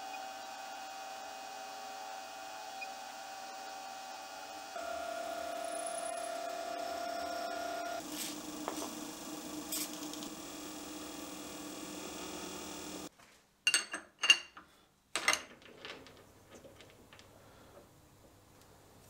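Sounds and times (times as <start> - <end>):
milling machine spindle running: 0.0 - 13.1.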